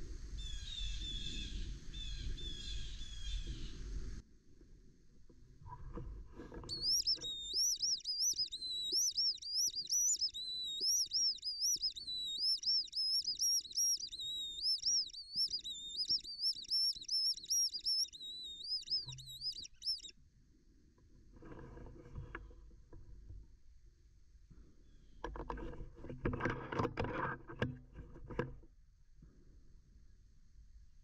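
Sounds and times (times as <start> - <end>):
squirrel distress call: 6.7 - 20.1.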